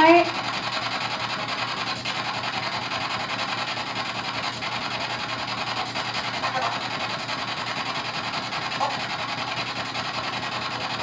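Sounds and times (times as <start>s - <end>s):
pulsing radio static: 5.7s - 7.4s, 8.6s - 9.2s.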